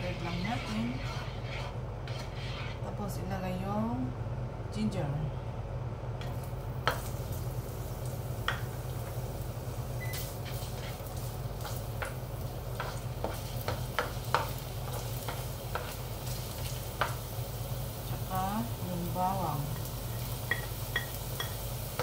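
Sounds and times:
spatula scraping and tapping pan: 0:00.0 - 0:02.8, 0:10.4 - 0:17.2, 0:19.8 - 0:22.0
ginger sizzling in hot oil: 0:06.3 - 0:22.0.

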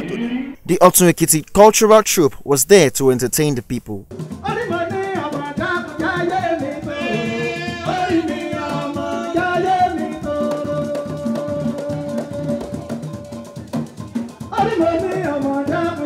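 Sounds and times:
hand drums: 0:04.1 - 0:16.0
folk singing: 0:04.4 - 0:16.0.

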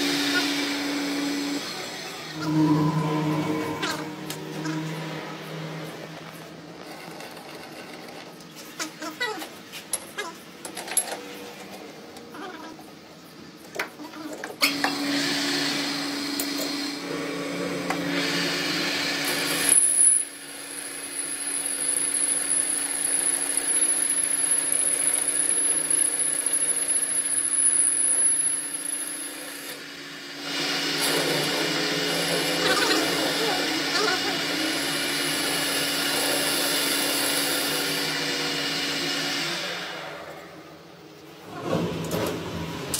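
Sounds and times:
lathe humming: 0:00.9 - 0:07.9
thin high whine: 0:02.2 - 0:07.4.

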